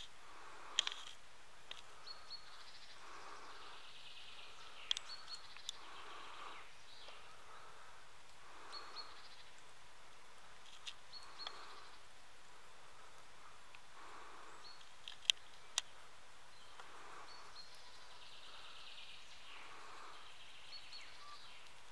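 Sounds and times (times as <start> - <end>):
songbirds calling: 0.0 - 21.9
sharp clicks: 4.8 - 5.8.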